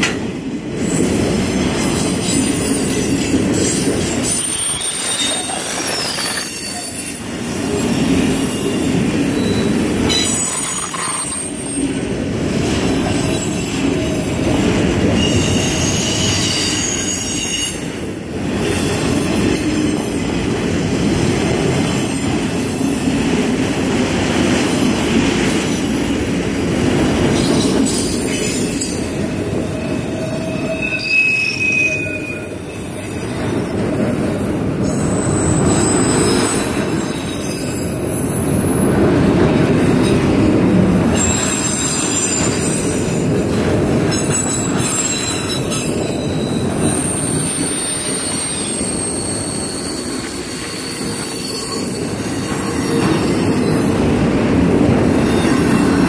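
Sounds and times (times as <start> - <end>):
steel wheels rumbling on rail: 0.0 - 56.0
high metallic squeals: 27.9 - 38.4, 44.2 - 53.0.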